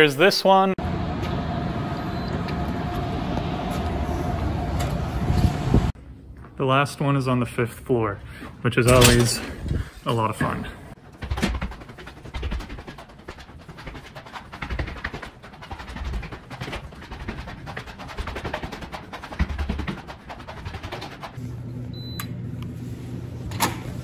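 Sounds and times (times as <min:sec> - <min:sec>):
footsteps on concrete stairs: 0:10.4 - 0:21.3
card reader beep: 0:21.9 - 0:22.4.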